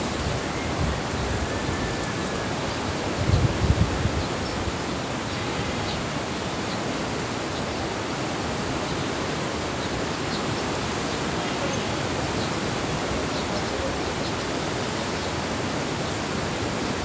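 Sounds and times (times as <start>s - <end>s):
river current rushing: 0.0s - 17.0s.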